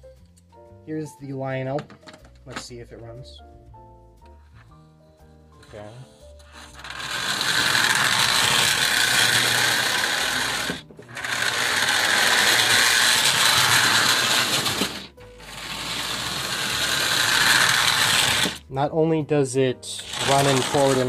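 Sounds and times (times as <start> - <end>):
toy train rattling whir: 5.6 - 18.6, 19.9 - 21.0.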